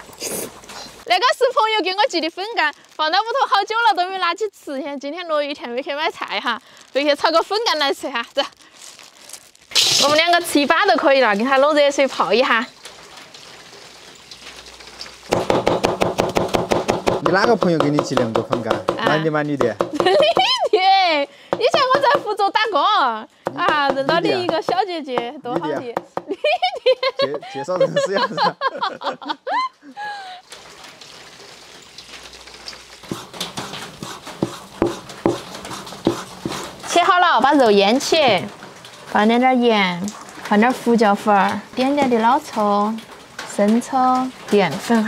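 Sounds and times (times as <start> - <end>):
rain pattering: 0.0 - 45.0
water pouring into steel bowl: 6.1 - 15.9, 30.4 - 44.9
knife chopping on cutting board: 15.3 - 20.2, 23.5 - 24.8, 33.1 - 35.5.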